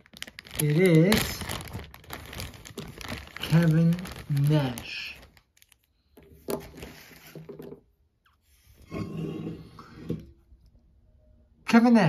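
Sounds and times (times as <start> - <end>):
plastic bag rustling: 0.0 - 7.6.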